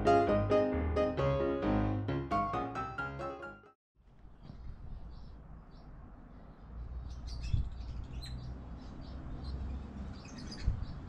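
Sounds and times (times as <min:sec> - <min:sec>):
small birds chirping: 0:04.2 - 0:11.0.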